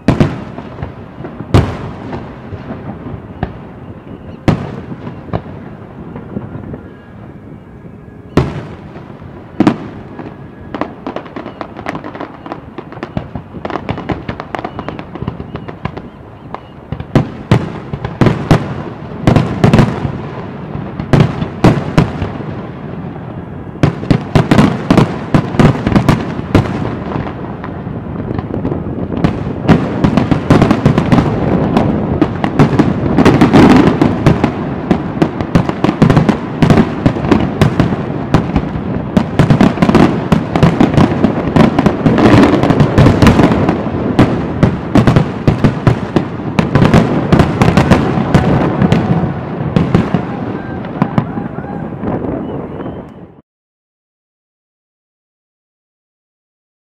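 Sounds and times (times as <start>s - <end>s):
fireworks bursting with bangs: 0.0s - 53.3s.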